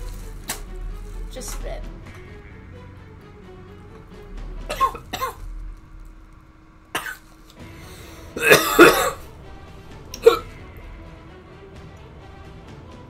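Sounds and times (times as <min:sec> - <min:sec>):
person coughing and hacking: 0:04.7 - 0:05.4, 0:07.0 - 0:07.2, 0:08.4 - 0:09.3, 0:10.2 - 0:10.5.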